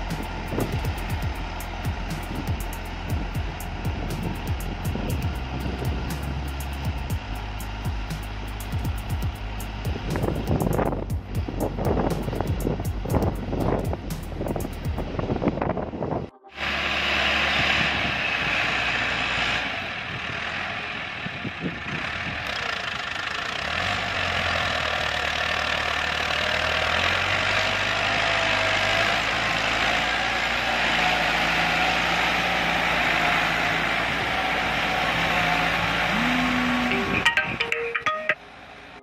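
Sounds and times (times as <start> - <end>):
tractor diesel engine under load: 0.0 - 39.0.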